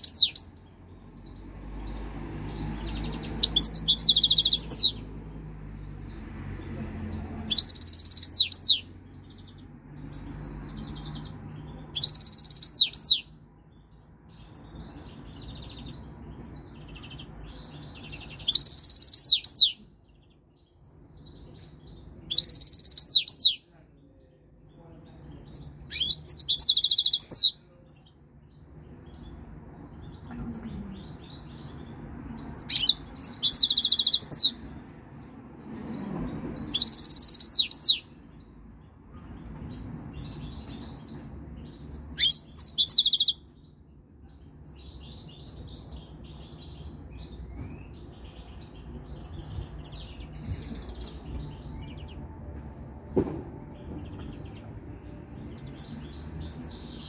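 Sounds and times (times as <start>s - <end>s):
goldfinch twittering: 12.0s - 13.2s, 22.3s - 23.5s.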